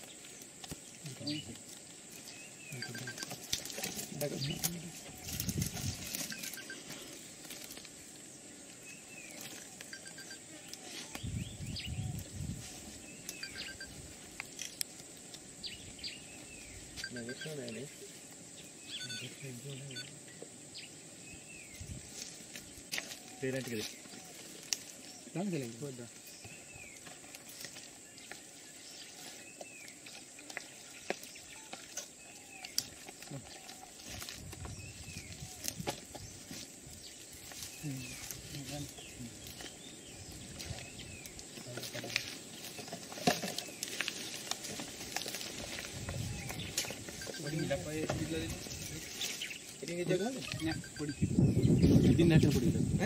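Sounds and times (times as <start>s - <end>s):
birds chirping: 0.0s - 53.0s
faint outdoor background hiss: 0.0s - 53.0s
high insect hum: 0.0s - 53.0s.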